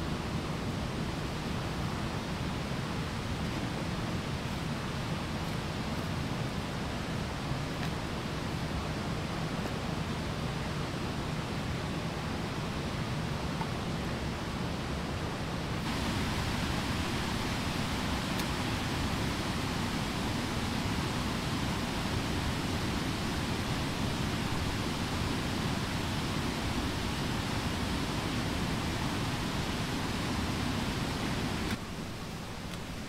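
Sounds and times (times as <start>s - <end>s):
steady rushing outdoor noise: 0.0s - 33.0s.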